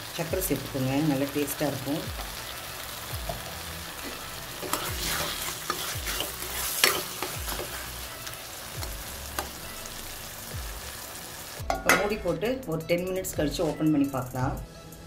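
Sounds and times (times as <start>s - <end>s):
tomatoes sizzling in oil: 0.0s - 14.6s
metal spoon scraping pan: 4.0s - 8.2s.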